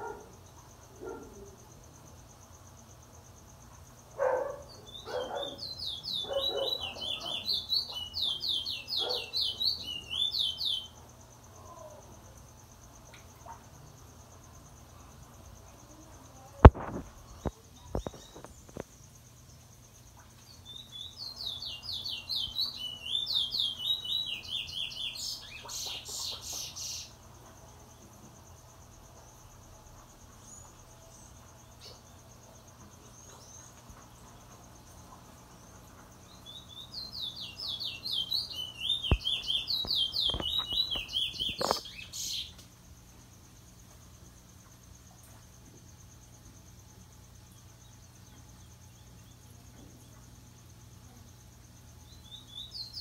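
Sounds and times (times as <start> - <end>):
bird chirping: 4.2 - 11.0, 20.4 - 27.2, 36.3 - 42.6, 52.0 - 53.0.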